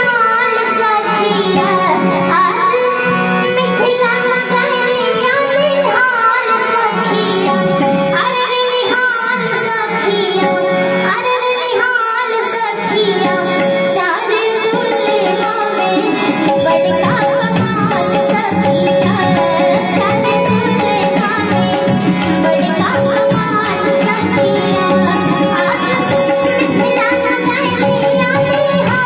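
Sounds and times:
girl singing into a microphone: 0:00.0 - 0:29.0
harmonium: 0:00.0 - 0:29.0
tabla drum beat: 0:12.4 - 0:29.0.

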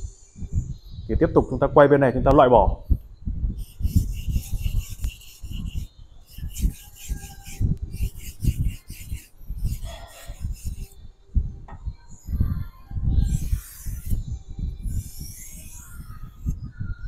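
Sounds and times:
knife rubbed across whetstone: 0:03.6 - 0:11.0, 0:13.2 - 0:16.6.

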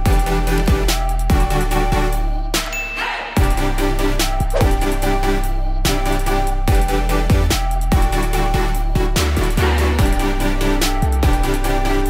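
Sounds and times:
electronic music with steady beat: 0:00.0 - 0:12.0
deep bass hits dropping in pitch: 0:04.5 - 0:05.2.

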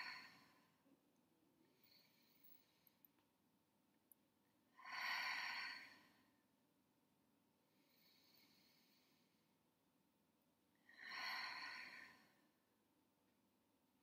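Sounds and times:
woman breathing out slowly: 0:00.0 - 0:00.7, 0:04.8 - 0:06.3, 0:10.9 - 0:12.5.

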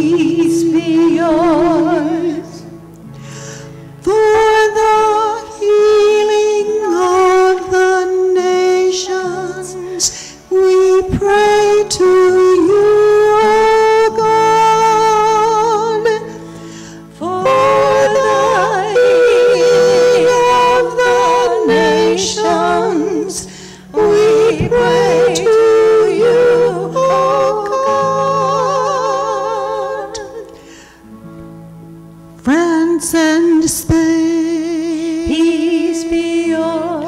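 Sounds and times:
woman singing chant with vibrato: 0:17.2 - 0:30.6.

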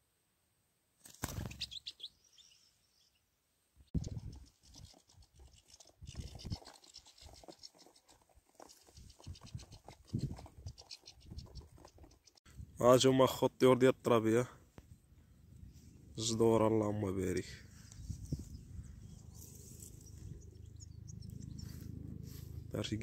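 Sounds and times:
high bird chirps: 0:01.4 - 0:03.2, 0:17.8 - 0:22.0.

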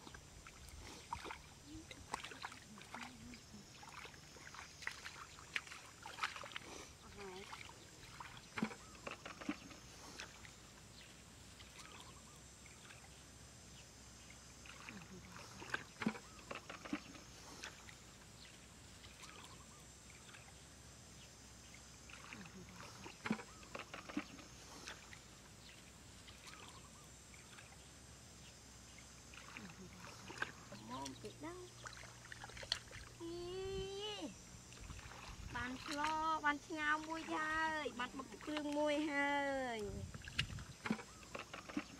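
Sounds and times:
splashing in muddy water: 0:00.0 - 0:10.7, 0:14.6 - 0:18.1, 0:22.0 - 0:25.3, 0:29.2 - 0:41.9.

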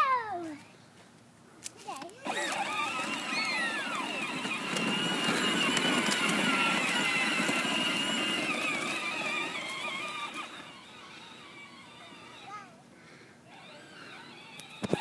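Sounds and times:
plastic wheels rolling: 0:02.0 - 0:12.6, 0:13.5 - 0:15.0
electric motor whining: 0:02.2 - 0:12.5, 0:13.5 - 0:15.0.

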